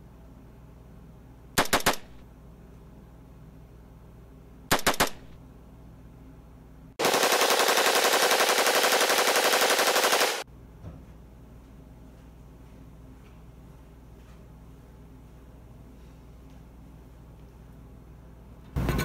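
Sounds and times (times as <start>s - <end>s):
gunshots: 1.6s - 2.2s, 4.7s - 5.3s, 7.0s - 10.4s
rapid automatic gunfire: 1.6s - 2.2s, 4.7s - 5.3s, 7.0s - 10.4s.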